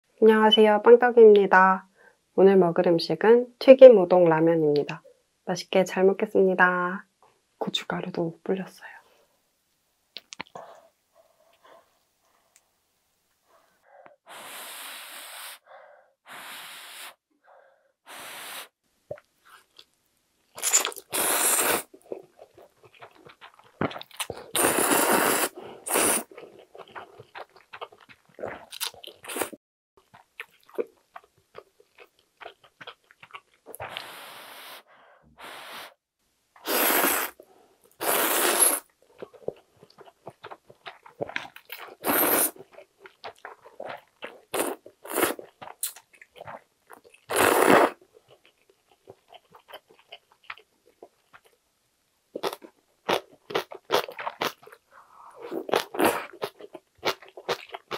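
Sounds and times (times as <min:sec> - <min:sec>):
person chewing: 0:10.2 - 0:11.7, 0:19.1 - 0:34.2, 0:37.9 - 0:51.6, 0:52.4 - 0:57.9
person slurping noodles: 0:20.6 - 0:22.0, 0:24.2 - 0:26.4, 0:36.6 - 0:37.4, 0:38.0 - 0:38.9, 0:42.0 - 0:42.6, 0:44.5 - 0:46.0, 0:47.3 - 0:48.0.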